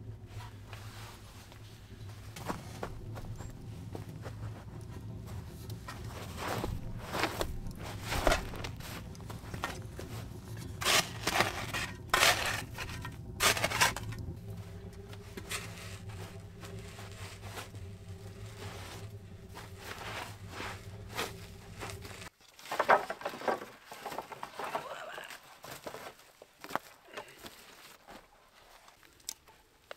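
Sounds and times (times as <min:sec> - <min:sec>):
shovel scraping sandy soil: 0:06.2 - 0:14.2.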